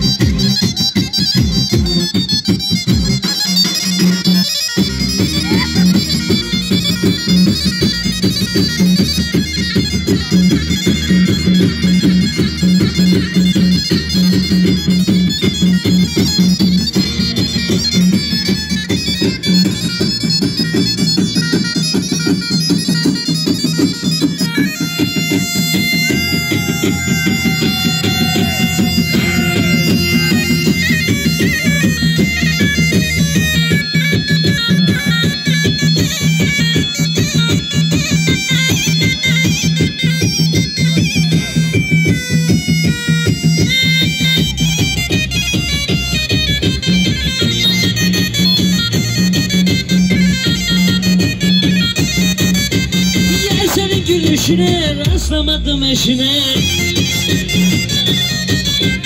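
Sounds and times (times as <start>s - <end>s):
reedy bagpipe-like melody: 0.0s - 59.0s
fast drum beat: 14.7s - 33.9s, 53.1s - 59.0s.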